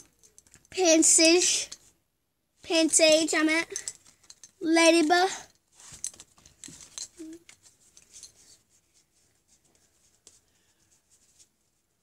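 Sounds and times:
trading cards rustling and clicking: 0:05.8 - 0:08.6.

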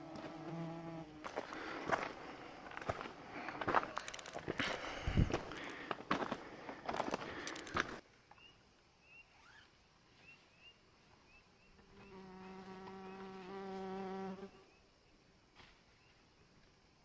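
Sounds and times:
flying insect buzzing: 0:00.0 - 0:01.3, 0:11.8 - 0:14.8.

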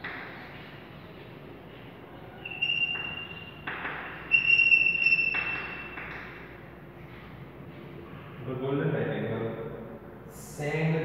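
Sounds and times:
chalk squealing: 0:02.2 - 0:06.0.

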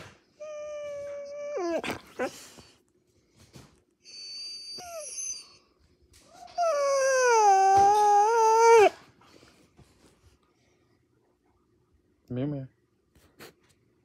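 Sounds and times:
dog whining and howling: 0:00.3 - 0:02.7, 0:04.0 - 0:09.1.

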